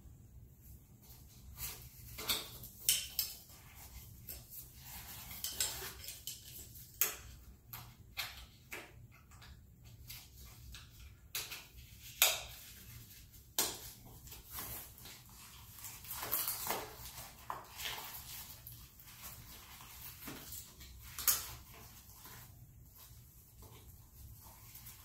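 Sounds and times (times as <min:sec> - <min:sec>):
cloth and plastic rustling: 0:11.6 - 0:25.0.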